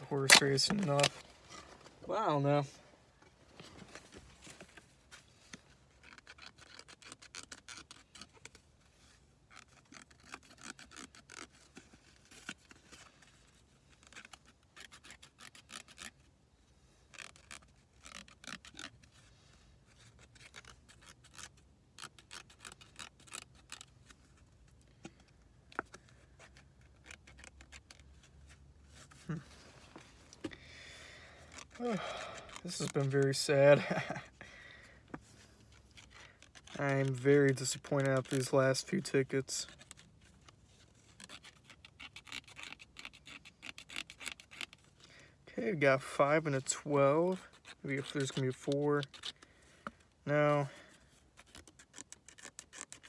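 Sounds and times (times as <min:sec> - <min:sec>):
lottery ticket scratching: 0:31.5 - 0:33.8, 0:36.0 - 0:39.8, 0:45.8 - 0:49.3.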